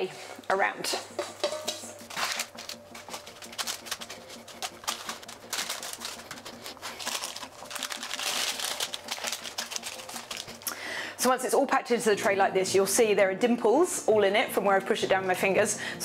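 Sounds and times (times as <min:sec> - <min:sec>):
baking paper crinkling: 0:01.9 - 0:10.7.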